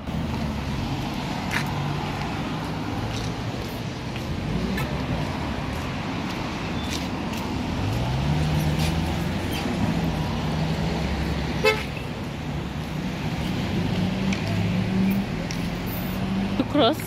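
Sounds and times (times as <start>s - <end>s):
cars passing on road: 0.0s - 17.0s
car horn toot: 11.6s - 12.0s.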